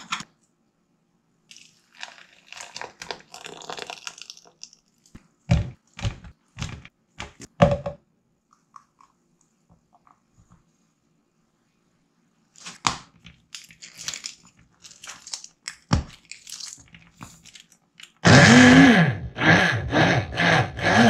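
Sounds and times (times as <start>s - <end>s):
blender motor pulsing: 18.2s - 21.0s.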